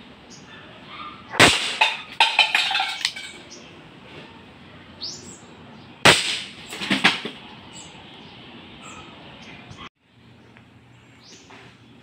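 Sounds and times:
airsoft revolver shot: 1.3 - 2.0, 6.0 - 6.5.

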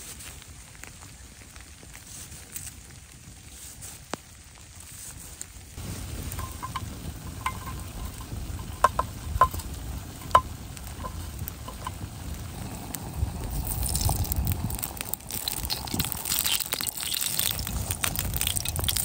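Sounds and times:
meat and onion sizzling: 5.8 - 19.0
spoon clinking against metal pot: 6.3 - 9.6.

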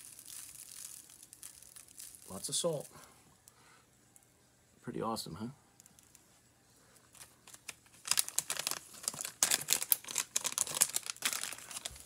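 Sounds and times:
plastic package crinkling: 0.0 - 3.0, 7.1 - 12.0.

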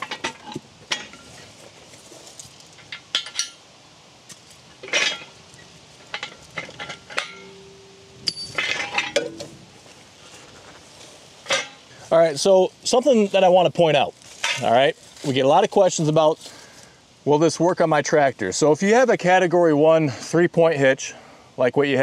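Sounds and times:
metal clinks and clanks: 2.7 - 3.6, 4.8 - 9.6.

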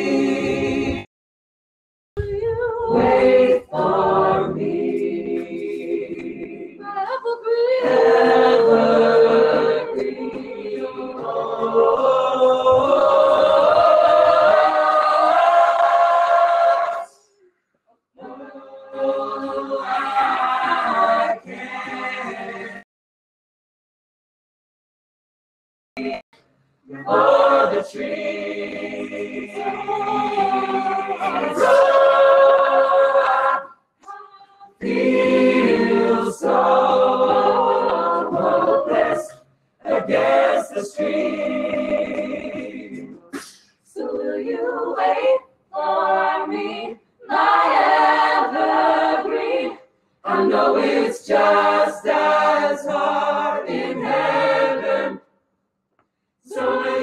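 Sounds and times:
a cappella group singing: 0.0 - 1.1, 2.2 - 17.3, 18.2 - 22.8, 26.0 - 26.2, 26.8 - 55.4, 56.0 - 57.0.

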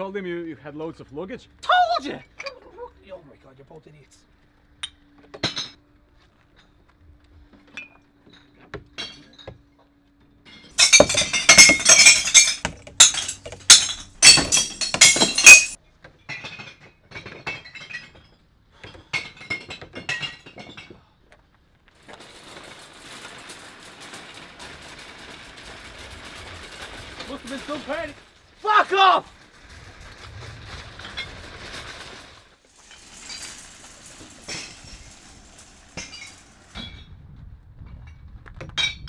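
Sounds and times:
glass bottles smashing in bin: 10.7 - 18.3, 19.1 - 20.9, 22.0 - 28.6, 30.8 - 37.0.

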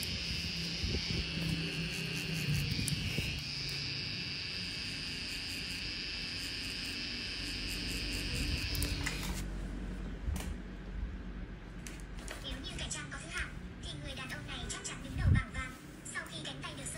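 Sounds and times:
tattoo machine whine: 0.0 - 9.5.

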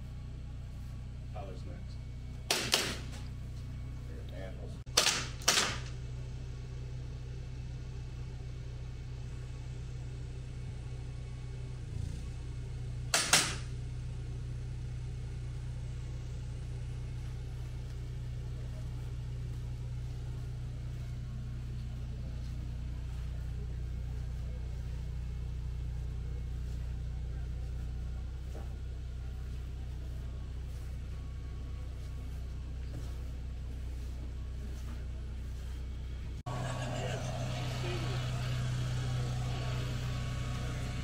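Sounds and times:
sharp bangs: 2.5 - 3.2, 4.9 - 6.0, 13.1 - 13.7
steady low rumble: 13.0 - 41.0.

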